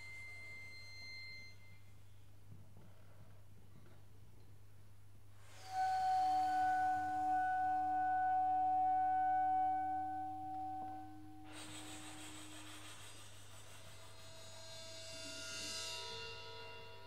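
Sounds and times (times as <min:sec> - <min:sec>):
faint electrical hum: 0:00.0 - 0:17.0
lower held note: 0:05.4 - 0:12.1
clarinet holding high note: 0:05.5 - 0:11.6.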